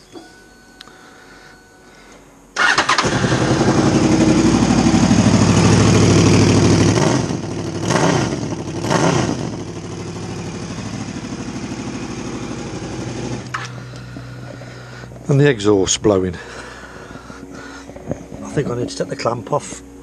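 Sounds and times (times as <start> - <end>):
motorcycle engine idling: 2.6 - 18.8.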